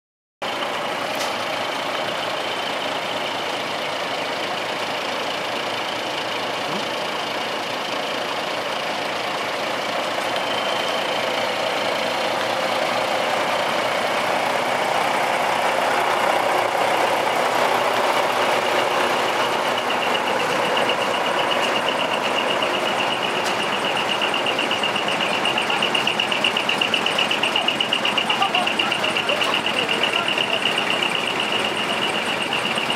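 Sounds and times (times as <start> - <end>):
diesel truck engines idling: 0.4 - 32.9
fast high-pitched pulsing tone: 18.6 - 32.9.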